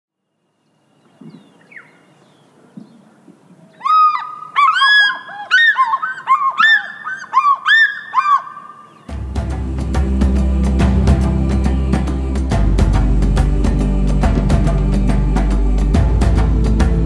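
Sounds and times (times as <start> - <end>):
geese honking: 3.8 - 9.0.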